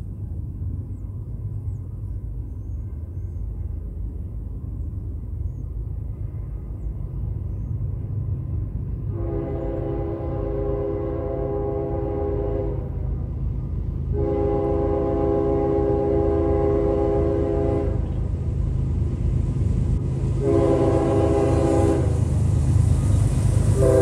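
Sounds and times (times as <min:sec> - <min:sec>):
freight train rumble: 0:00.0 - 0:24.0
locomotive air horn blasts: 0:09.1 - 0:13.1, 0:14.1 - 0:18.1, 0:20.4 - 0:22.2, 0:23.8 - 0:24.0.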